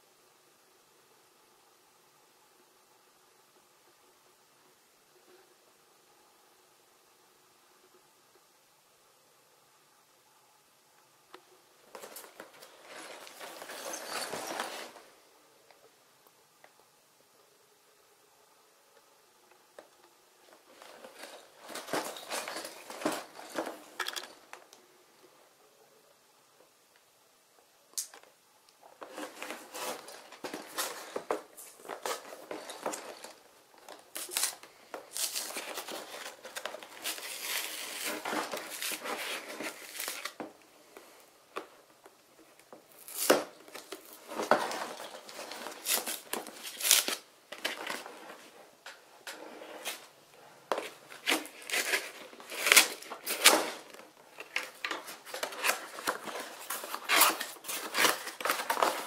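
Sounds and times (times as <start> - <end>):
cardboard rustling and scraping: 11.9 - 15.2, 20.5 - 24.4, 29.0 - 40.5, 42.9 - 59.0
cardboard ripping: 43.0 - 48.0, 51.1 - 53.9, 55.2 - 59.0.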